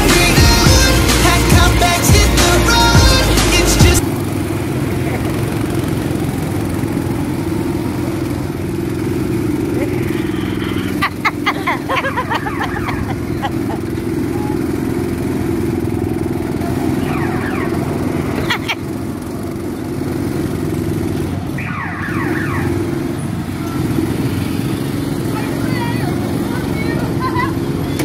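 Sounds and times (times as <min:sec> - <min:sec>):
go-kart engines running: 0:00.0 - 0:28.0.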